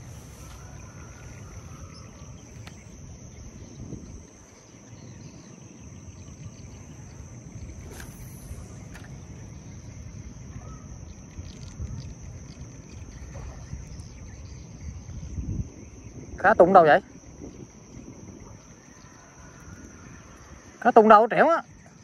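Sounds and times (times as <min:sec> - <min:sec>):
insect chorus: 0:00.0 - 0:22.0
wind rumble on microphone: 0:00.0 - 0:22.0
faint clicks: 0:02.4 - 0:02.9.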